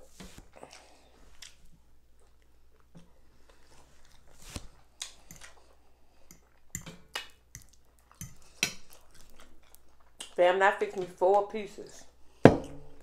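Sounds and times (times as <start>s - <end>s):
person chewing: 0.4s - 10.4s.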